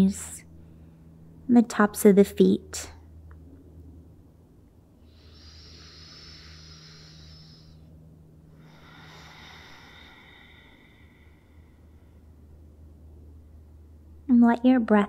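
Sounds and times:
low steady hum: 0.0s - 15.0s
woman breathing slowly: 5.0s - 12.8s.

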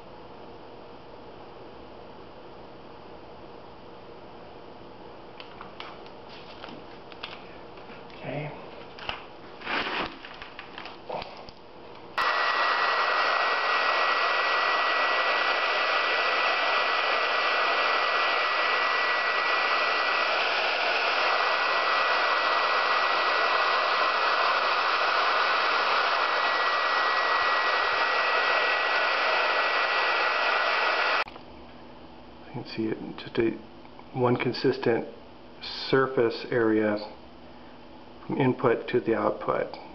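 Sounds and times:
hair dryer blowing: 12.2s - 31.3s.

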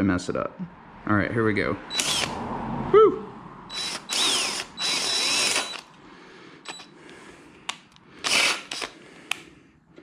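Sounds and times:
cordless drill drilling: 1.9s - 2.4s, 3.7s - 5.9s, 6.6s - 6.9s, 8.2s - 9.0s.

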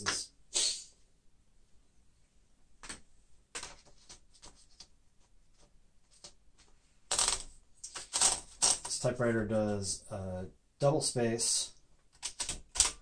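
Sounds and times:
paper rustling: 3.5s - 9.0s.

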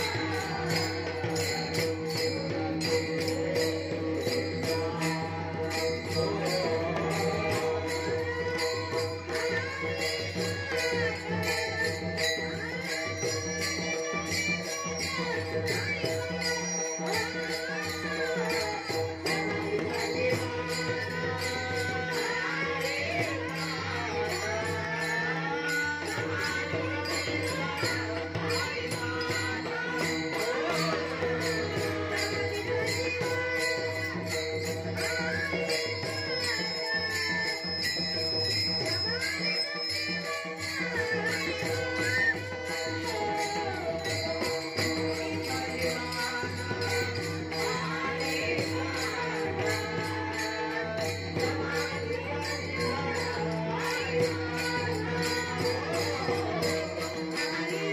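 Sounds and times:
hand cymbals clashing: 0.0s - 57.9s
voices singing through a pa: 0.0s - 57.9s.

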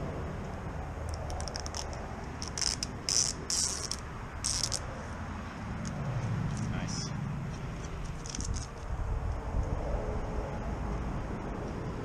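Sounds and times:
adhesive tape peeling: 1.0s - 4.9s, 7.5s - 9.0s.

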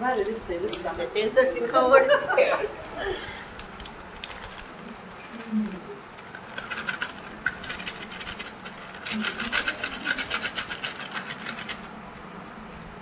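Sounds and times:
plastic packet crinkling: 2.8s - 11.9s.

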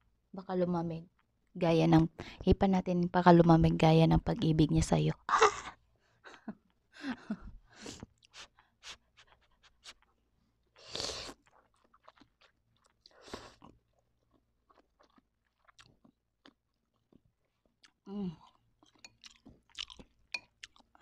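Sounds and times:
wet chewing and mouth clicks: 8.0s - 21.0s.

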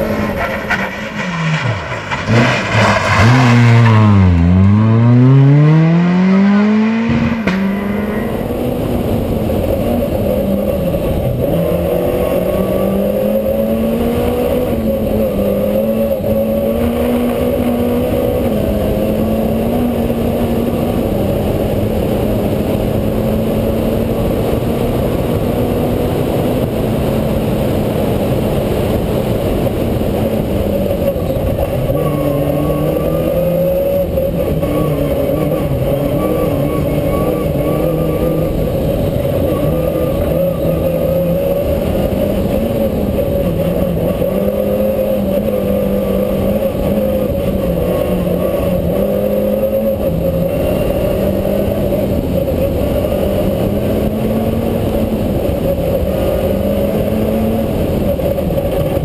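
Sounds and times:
rally car engine running hard: 0.0s - 59.0s
tyre and road noise: 0.0s - 59.0s.

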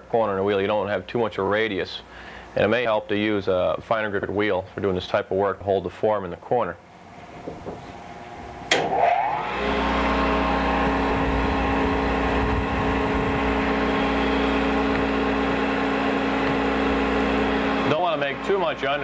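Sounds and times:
grinding wheel motor humming: 6.8s - 19.0s.

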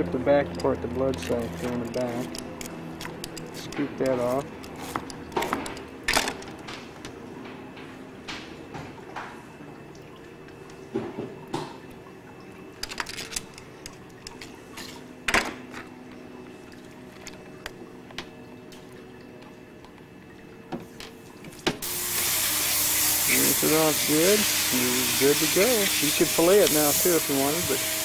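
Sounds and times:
clicks and knocks of fish handling: 0.4s - 9.4s, 12.8s - 20.1s
fish being scraped: 1.2s - 3.7s
hiss of spraying water: 21.8s - 28.0s.

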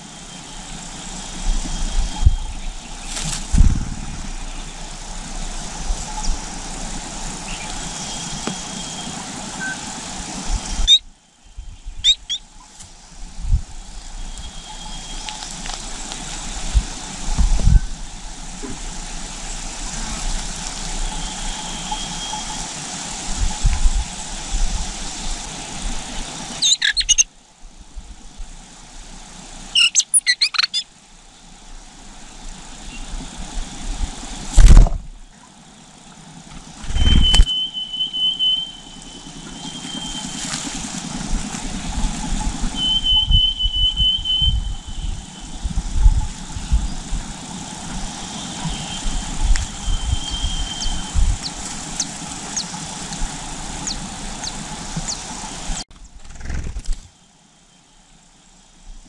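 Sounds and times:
steady hiss: 0.0s - 59.0s
loud thumps: 3.4s - 4.4s
rapid high chirps: 12.0s - 12.6s, 26.6s - 27.3s, 29.7s - 30.9s
thin high squeal: 36.9s - 40.8s, 42.7s - 45.6s.

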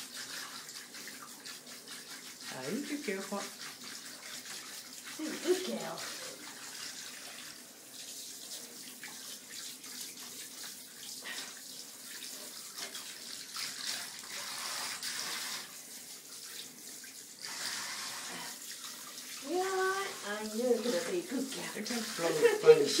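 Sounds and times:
shower spraying water: 0.0s - 23.0s.

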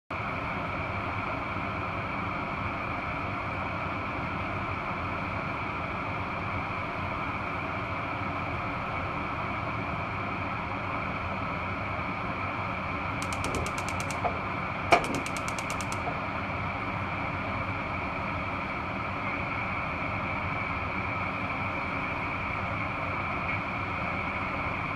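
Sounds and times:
sharp knock: 13.2s - 16.2s
rapid clicking: 13.2s - 16.3s
gas hob hiss and hum: 13.2s - 16.5s.

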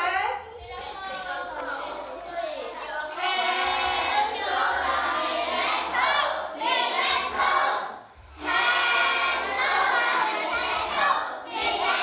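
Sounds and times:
children singing together: 2.8s - 12.0s.

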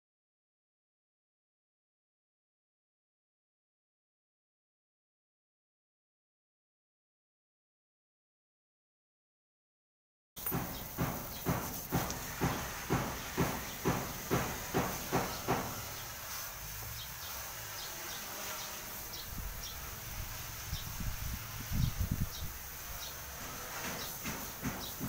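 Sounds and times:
hose water splashing into basin: 10.4s - 17.9s.

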